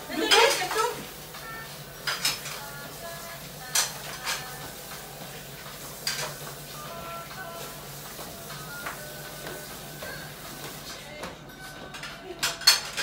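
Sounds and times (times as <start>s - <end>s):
dishes and cutlery clinking: 0.2s - 2.7s, 3.6s - 5.0s, 5.7s - 6.6s, 8.5s - 13.0s.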